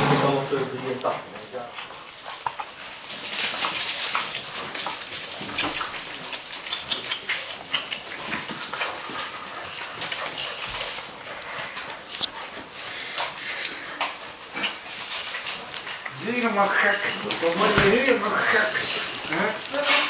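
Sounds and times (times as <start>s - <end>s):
puppy claws pattering on tiles: 0.8s - 20.0s
puppy whimpers: 18.3s - 20.0s.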